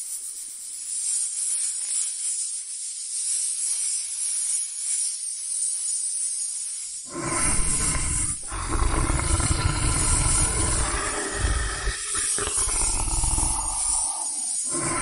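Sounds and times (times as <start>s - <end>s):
lion roaring: 7.1s - 15.0s.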